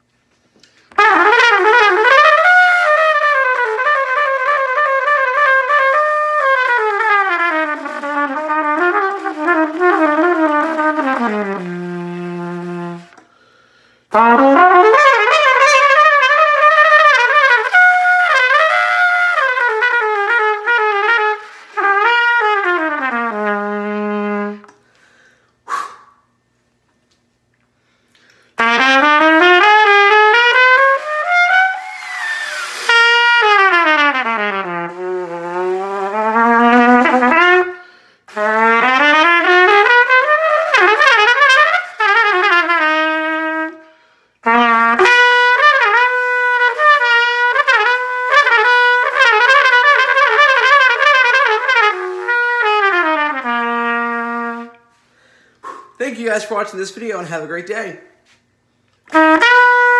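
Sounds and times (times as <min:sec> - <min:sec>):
solo trumpet melody: 0:00.0 - 0:24.9, 0:28.6 - 0:59.9.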